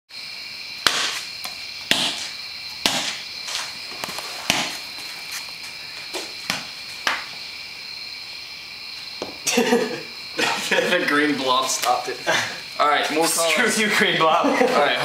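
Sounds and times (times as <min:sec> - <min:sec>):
ball slapping onto paper: 0:00.8 - 0:04.9, 0:06.2 - 0:07.4.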